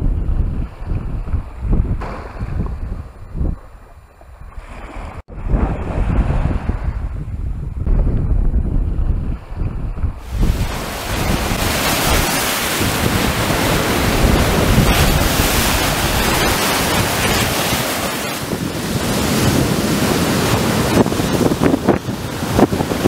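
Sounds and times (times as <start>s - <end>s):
wind buffeting microphone: 0.0s - 23.0s
surf breaking on beach: 10.2s - 23.0s.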